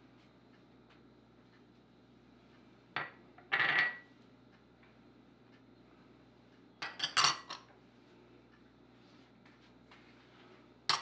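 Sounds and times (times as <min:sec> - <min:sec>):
glass bowls clinking: 0:03.0 - 0:04.0, 0:06.8 - 0:07.6.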